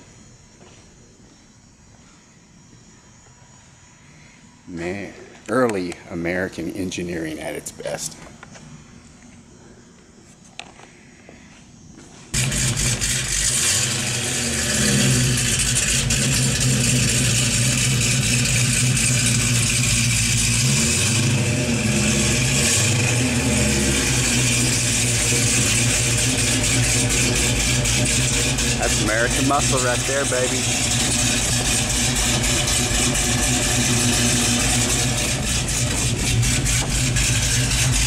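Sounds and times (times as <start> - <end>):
car engine idling: 12.4 - 38.0.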